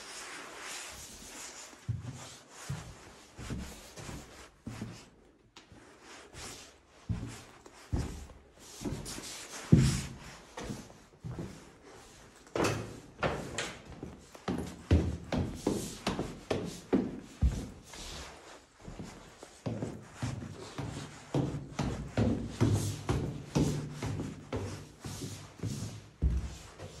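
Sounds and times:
faint rustle of movement: 0:00.0 - 0:12.5, 0:15.6 - 0:21.3
footsteps on bare floor: 0:00.1 - 0:27.0.

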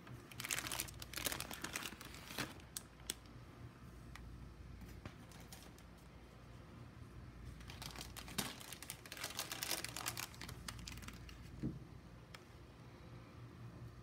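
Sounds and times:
plastic packets crinkling: 0:00.3 - 0:03.3, 0:05.2 - 0:06.0, 0:07.5 - 0:11.6.

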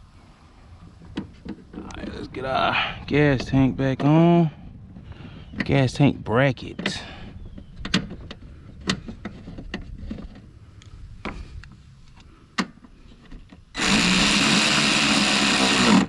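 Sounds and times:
electric ratchet whirring: 0:13.8 - 0:16.0.

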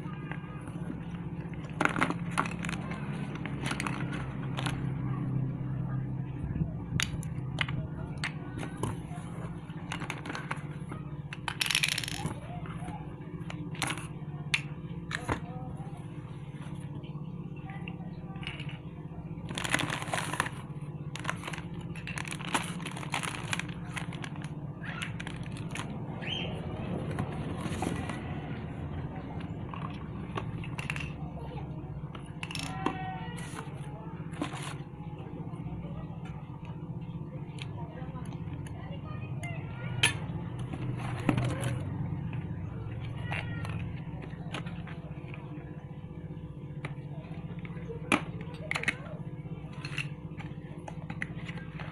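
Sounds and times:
steady low hum: 0:00.0 - 0:51.9
plastic bag crinkling: 0:21.2 - 0:25.9.

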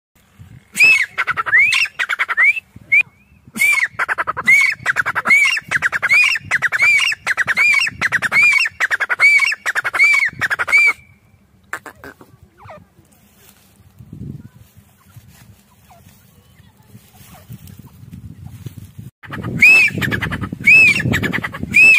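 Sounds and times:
francolin calling: 0:00.8 - 0:12.9, 0:19.3 - 0:21.9.

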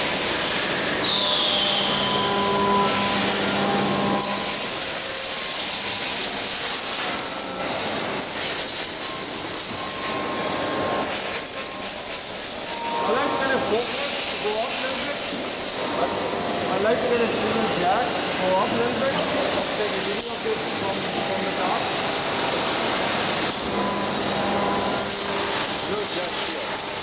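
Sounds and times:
factory machinery hissing: 0:00.0 - 0:27.0
high whistle: 0:00.3 - 0:03.5.

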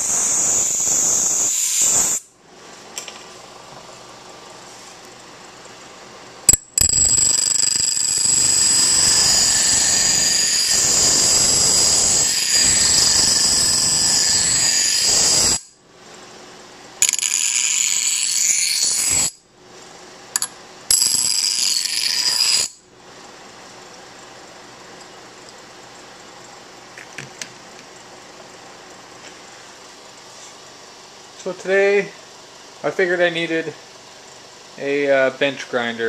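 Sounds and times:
steel grinding on grinding stone: 0:17.0 - 0:19.3, 0:20.4 - 0:22.8.

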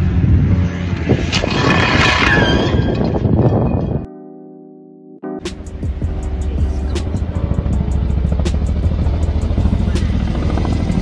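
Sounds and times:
steady rushing noise: 0:05.5 - 0:11.0.

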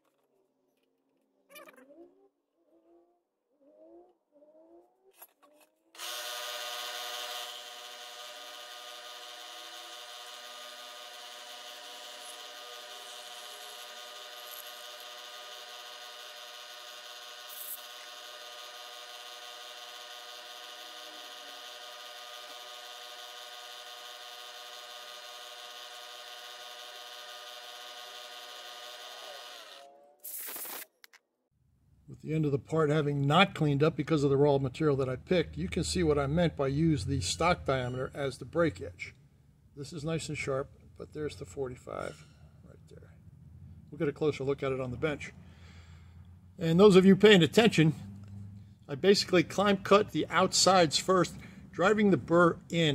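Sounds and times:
milling machine spindle whine: 0:06.0 - 0:29.8.

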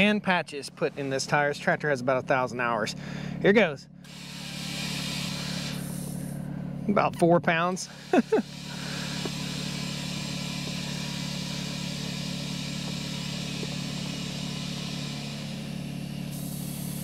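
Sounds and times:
steady motor hum: 0:00.0 - 0:17.0
compressed air hissing into tyre: 0:04.0 - 0:06.5, 0:07.9 - 0:17.0.

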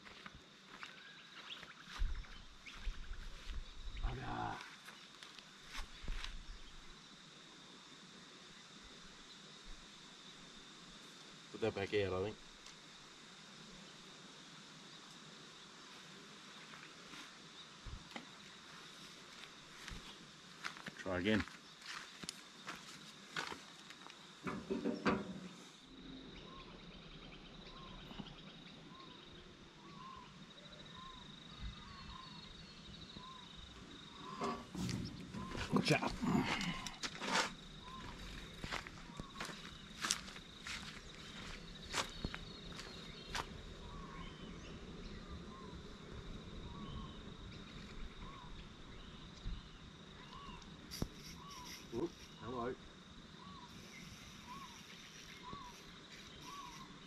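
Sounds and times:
high-pitched insect drone: 0:00.0 - 0:17.3, 0:17.9 - 0:57.0
birds calling: 0:24.5 - 0:46.1, 0:46.7 - 0:52.8, 0:53.4 - 0:57.0
chirping bird calls: 0:29.9 - 0:37.0, 0:50.2 - 0:52.5, 0:53.4 - 0:57.0
steady high whine: 0:33.1 - 0:41.6.

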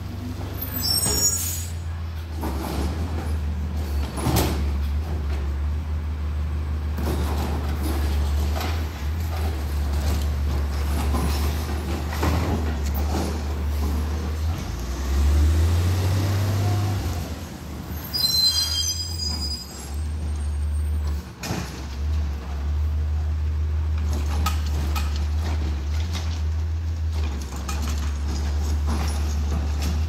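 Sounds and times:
truck engine rumble: 0:00.0 - 0:30.0
high squeal or air hiss: 0:00.7 - 0:01.8, 0:18.0 - 0:20.0.

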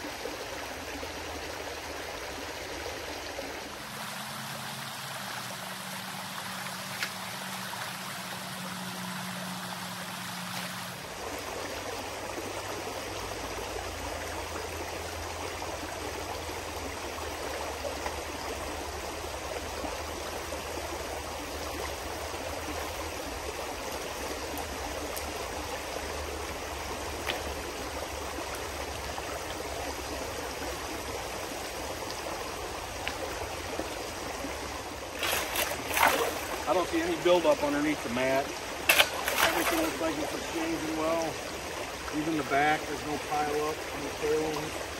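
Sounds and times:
creek water flowing over rocks: 0:00.0 - 0:44.9
shovel digging wet streambed: 0:06.3 - 0:08.4, 0:10.2 - 0:11.0, 0:35.2 - 0:40.7.

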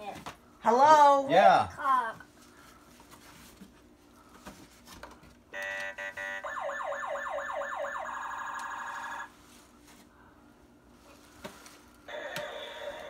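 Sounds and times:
steady electronic siren tone: 0:05.6 - 0:09.3
rising electronic siren sweeps: 0:06.4 - 0:09.3.

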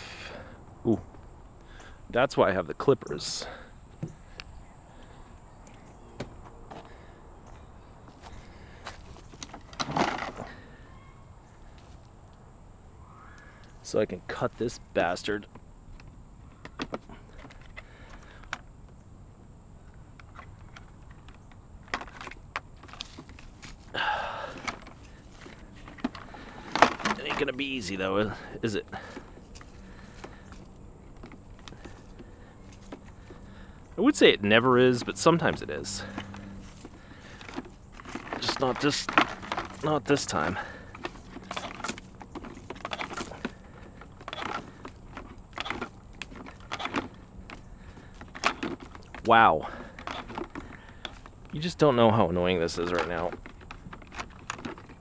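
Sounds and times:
hand clippers crunching and clicking: 0:20.2 - 0:28.2, 0:34.9 - 0:51.6, 0:52.7 - 0:55.0.

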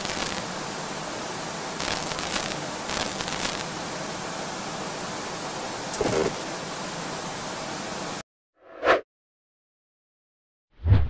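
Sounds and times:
glitchy crackle bursts: 0:00.0 - 0:00.6, 0:01.7 - 0:03.8, 0:05.9 - 0:06.5
static white noise hiss: 0:00.0 - 0:08.2.

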